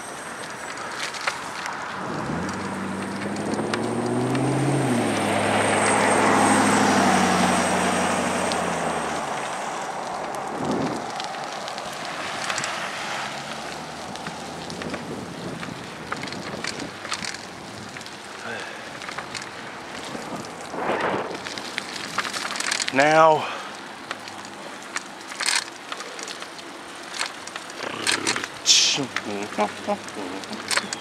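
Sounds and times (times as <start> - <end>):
tyres hissing on wet road: 0.0 - 16.1, 17.2 - 31.0
outdoor noise: 0.0 - 31.0
car driving past: 1.8 - 10.1, 12.1 - 14.8
small clicks: 10.2 - 12.8, 15.6 - 18.2, 24.1 - 31.0.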